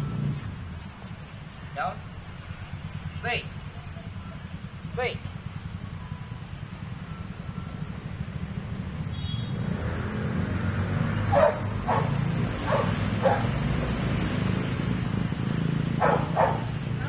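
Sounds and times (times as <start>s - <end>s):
dog barking: 11.3s - 13.7s, 16.0s - 16.8s.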